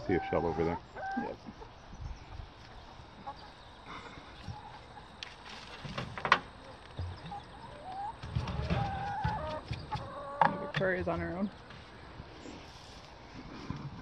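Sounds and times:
hens clucking softly: 0.0 - 5.4, 6.5 - 11.0
faint rustling: 3.9 - 7.2.

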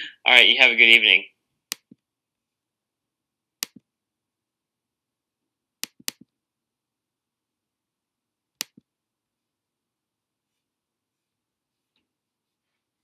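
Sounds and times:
computer mouse clicks: 1.7 - 2.0, 3.6 - 3.9, 5.8 - 6.4, 8.6 - 8.9.

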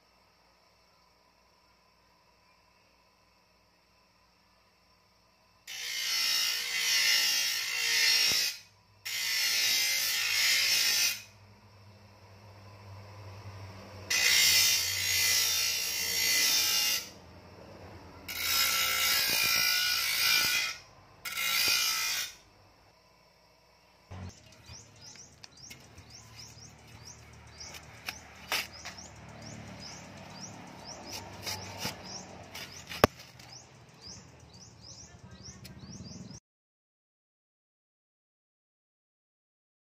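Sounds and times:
grinder grinding metal blade: 5.6 - 11.4, 14.0 - 17.2, 18.2 - 22.5, 24.1 - 34.6
grinder motor humming: 12.5 - 22.4, 24.1 - 36.4
birds chirping: 24.1 - 36.4.

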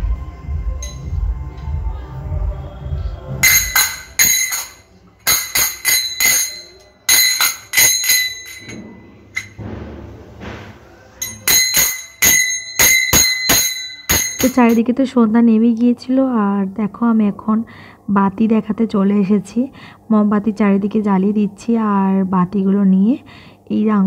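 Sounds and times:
small high-pitched bell strikes: 0.8 - 1.2, 11.2 - 14.8.

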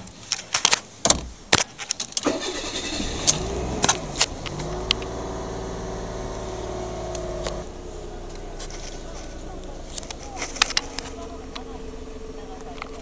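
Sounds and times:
car engine starting and idling: 1.0 - 13.0.

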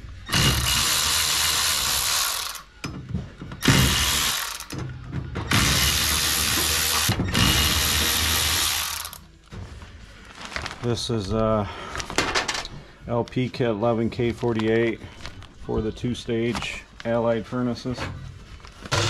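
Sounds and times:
handheld power tool running: 0.3 - 2.6, 3.6 - 4.8, 5.5 - 9.2.

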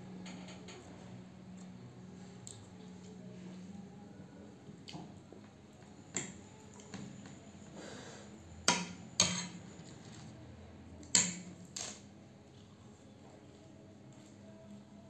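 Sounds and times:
cutlery clinking on a plate: 8.7 - 9.6.

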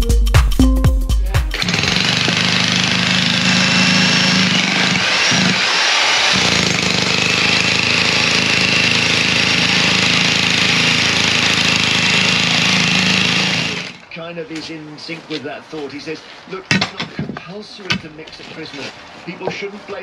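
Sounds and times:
demolition breaker pounding concrete: 1.5 - 14.0.

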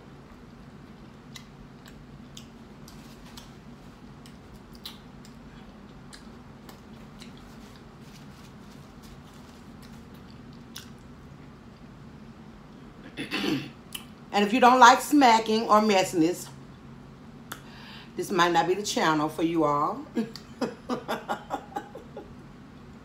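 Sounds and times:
woman chewing food: 0.0 - 11.9.

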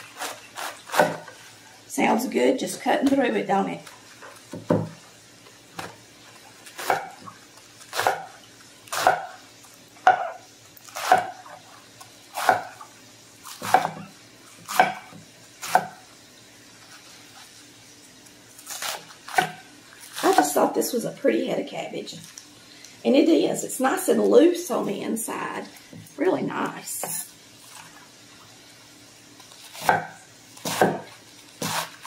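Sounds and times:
knife slicing cabbage on wooden board: 0.0 - 1.4, 6.7 - 7.2, 7.9 - 8.3, 8.9 - 9.4, 10.0 - 11.6, 12.3 - 12.8, 13.5 - 16.0, 18.6 - 20.6, 29.5 - 32.0.

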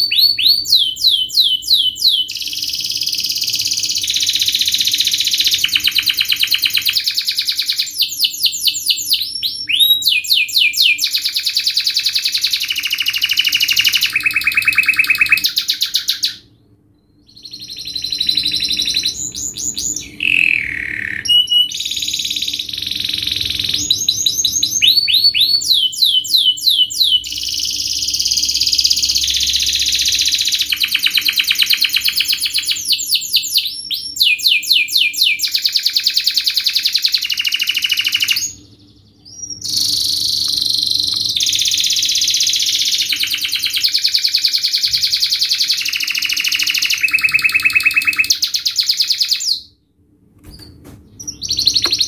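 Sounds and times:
canary singing trills: 0.0 - 49.8, 50.6 - 52.0.

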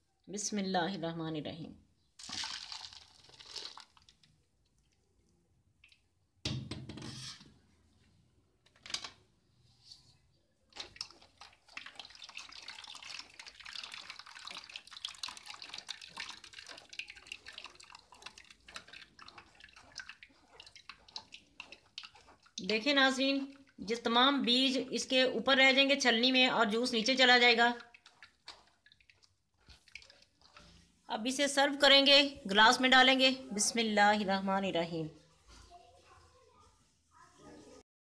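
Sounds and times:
pulp pouring into strainer: 2.2 - 4.3, 10.7 - 23.8, 27.0 - 30.8
wet crackle of pulp stirred: 2.2 - 6.0, 9.8 - 33.8
juice dripping: 2.2 - 6.1, 10.7 - 25.2, 25.8 - 31.1.

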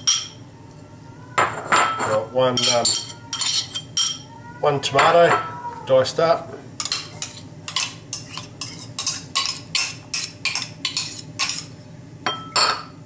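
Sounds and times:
metal spoon clinking bowl: 0.0 - 0.4, 1.5 - 4.2, 6.8 - 11.7.

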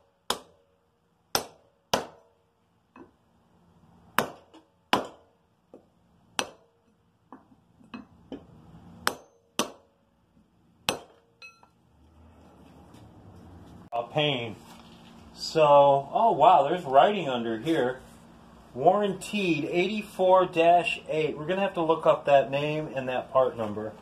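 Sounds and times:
hammer striking metal drift: 9.0 - 10.0, 10.8 - 11.7.

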